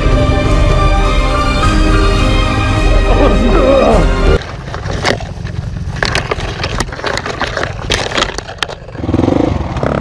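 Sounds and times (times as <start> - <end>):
dirt bike engine: 4.3 - 10.0.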